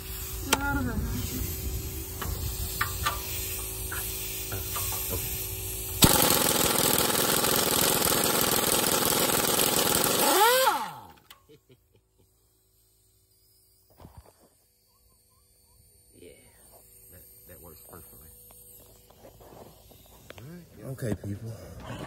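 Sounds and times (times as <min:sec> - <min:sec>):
air impact wrench hammering: 0:02.2 - 0:11.4.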